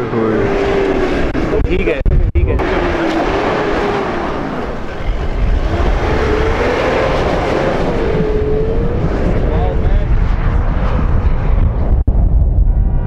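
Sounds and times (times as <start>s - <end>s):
car engine running hard: 0.0s - 11.6s.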